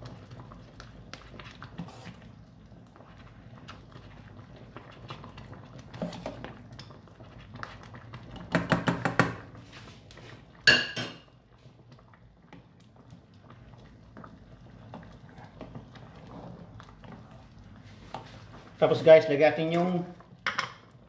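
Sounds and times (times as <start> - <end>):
ladle scraping a steel pot: 5.9 - 6.4.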